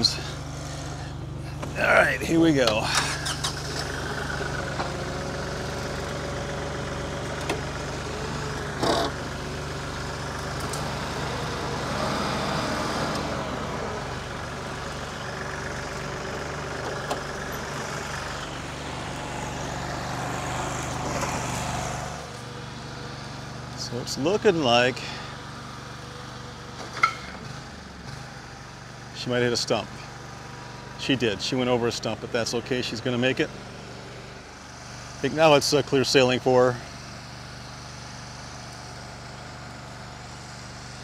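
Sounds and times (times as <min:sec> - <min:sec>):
riding mower engine: 0:00.0 - 0:41.0
tractor engine running: 0:00.0 - 0:41.0
clunk: 0:26.8 - 0:27.4.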